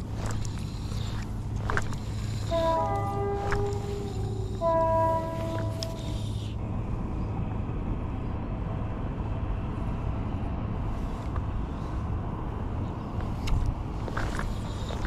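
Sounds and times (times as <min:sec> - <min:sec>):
low steady rumble: 0:00.0 - 0:15.0
train horn chord blasts: 0:02.4 - 0:06.3.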